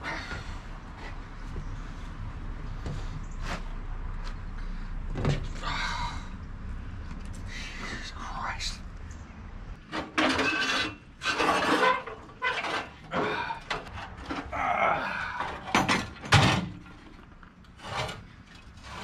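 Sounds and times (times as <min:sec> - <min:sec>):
rough rasping scraping strokes: 0:09.8 - 0:13.2.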